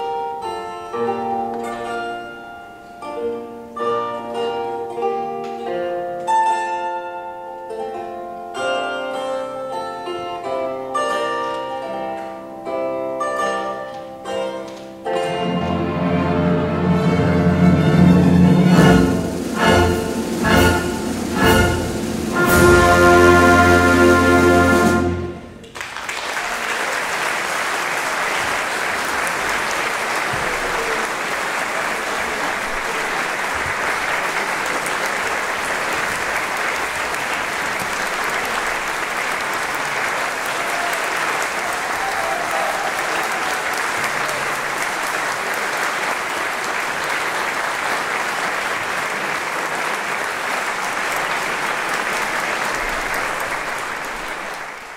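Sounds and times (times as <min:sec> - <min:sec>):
orchestra final chord: 0:15.2 - 0:25.6
audience applauding: 0:18.6 - 0:54.9.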